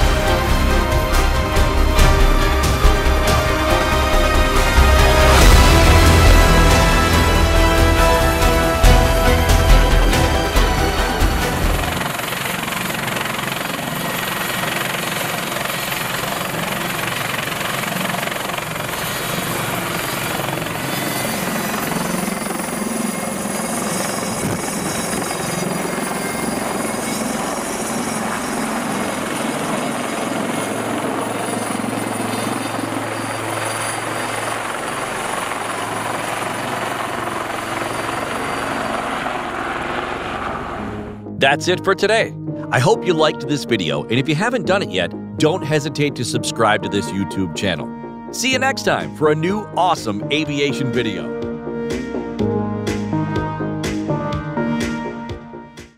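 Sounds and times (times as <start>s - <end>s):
helicopter rotor running: 0.0s - 41.4s
high turbine whine: 0.0s - 41.4s.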